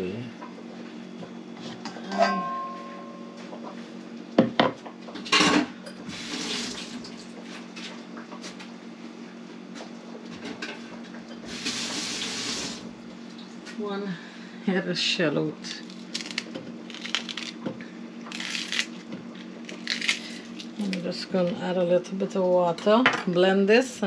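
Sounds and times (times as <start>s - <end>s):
steady low hum: 12.8s - 24.0s.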